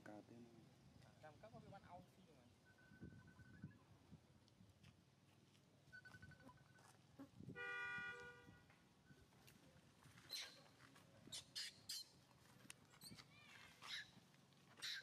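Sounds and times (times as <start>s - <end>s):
vehicle horn: 7.5s - 8.6s.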